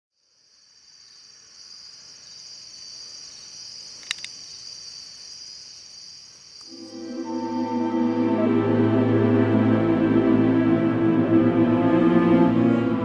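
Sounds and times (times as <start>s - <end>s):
crickets chirping: 0.1s - 13.0s
sharp clicks: 4.0s - 4.4s.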